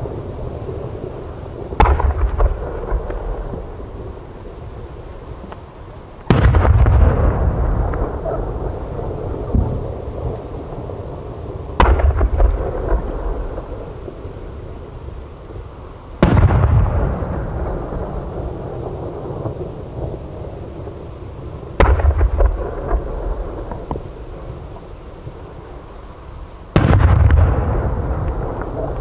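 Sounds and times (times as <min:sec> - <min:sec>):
firework booms with echo: 0:01.6 - 0:04.4, 0:06.2 - 0:11.0, 0:11.7 - 0:14.4, 0:16.2 - 0:20.2, 0:21.8 - 0:24.8, 0:26.7 - 0:29.0.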